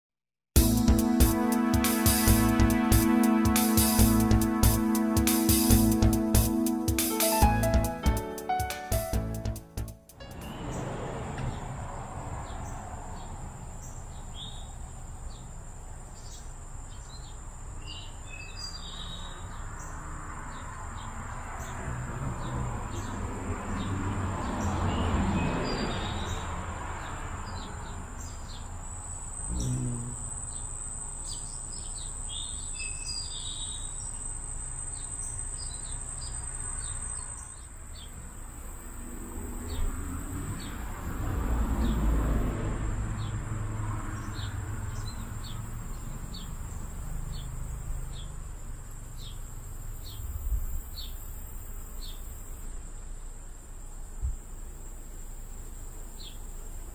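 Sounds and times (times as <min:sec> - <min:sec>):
small birds chirping: 0:10.2 - 0:38.7, 0:43.2 - 0:52.6, 0:55.6 - 0:56.9
high-pitched insect drone: 0:28.9 - 0:33.1.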